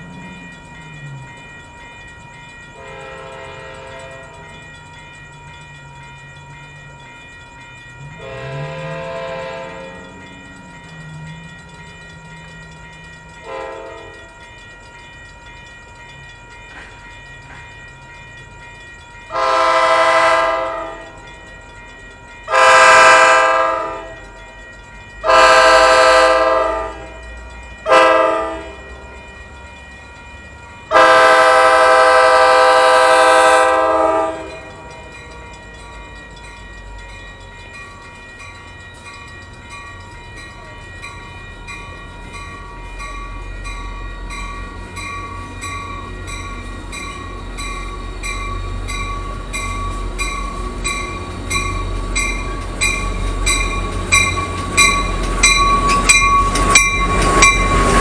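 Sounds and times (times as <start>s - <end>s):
locomotive air horn blasts: 2.8s - 4.2s, 8.2s - 10.0s, 13.4s - 14.1s, 19.3s - 21.2s, 22.5s - 24.2s, 25.2s - 27.1s, 27.9s - 28.8s, 30.9s - 34.8s.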